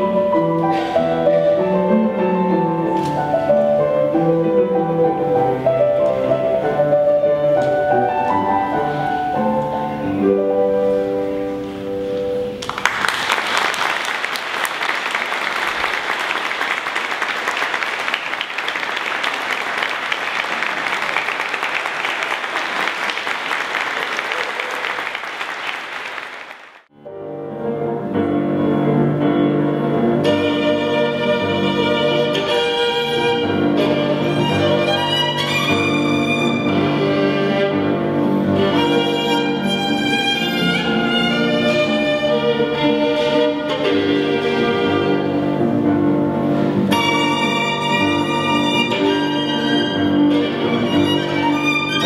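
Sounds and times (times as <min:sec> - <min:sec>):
violin with piano: 0:00.0 - 0:12.6, 0:27.1 - 0:52.0
grand piano playing: 0:00.0 - 0:13.2, 0:26.9 - 0:52.0
audience applauding: 0:12.6 - 0:26.9.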